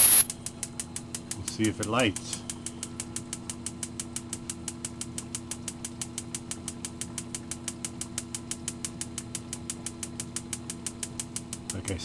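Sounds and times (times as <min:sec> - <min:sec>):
steady low hum: 0:00.0 - 0:05.1.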